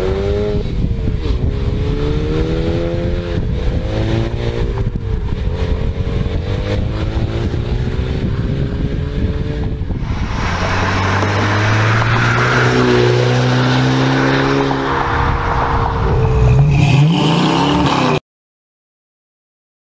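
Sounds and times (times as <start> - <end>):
car exhaust driving past: 10.0 - 16.7.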